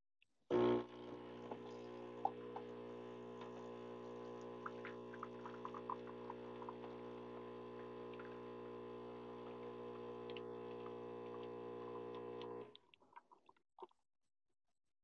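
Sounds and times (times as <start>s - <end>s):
espresso machine humming: 0.5s - 12.7s
coffee dripping: 0.8s - 2.8s, 3.4s - 8.6s.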